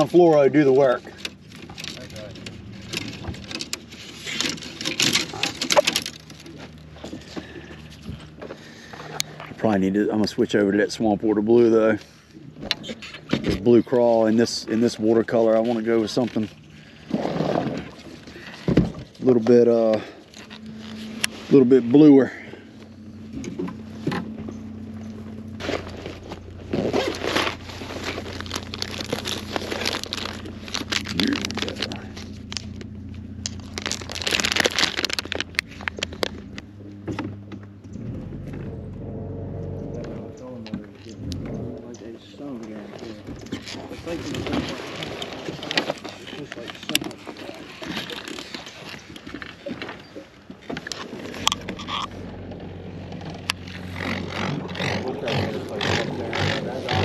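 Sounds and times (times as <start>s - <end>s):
fishing reel clicks and rustles: 0.0s - 10.5s, 11.3s - 37.6s, 40.9s - 57.0s
low steady hum: 0.0s - 57.0s
plastic packages crinkling: 25.6s - 36.7s.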